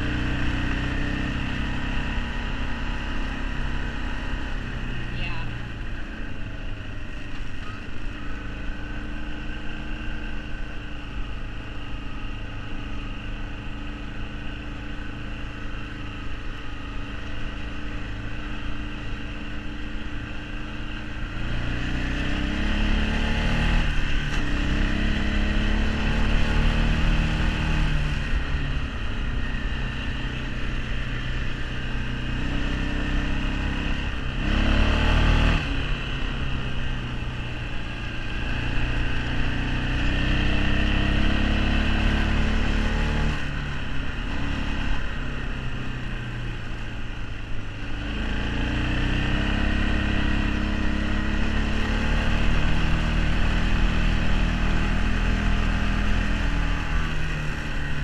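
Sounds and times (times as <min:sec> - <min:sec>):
atv engine revving: 0:16.7 - 0:47.0, 0:47.8 - 0:58.0.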